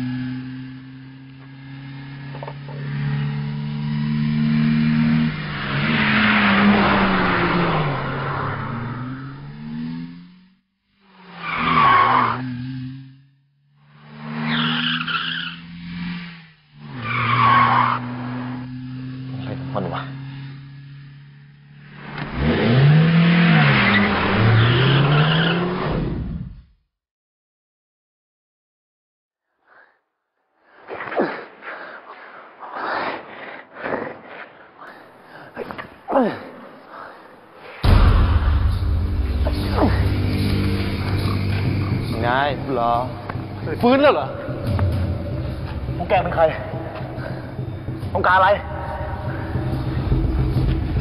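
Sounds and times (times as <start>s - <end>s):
car engine running hard: 0.0s - 25.0s, 38.6s - 51.0s
road and tyre noise: 0.0s - 26.7s, 30.8s - 51.0s.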